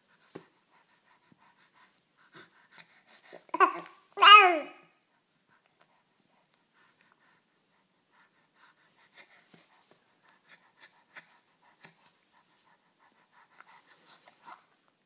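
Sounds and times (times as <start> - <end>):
short breathy rustles: 5.6 - 14.9.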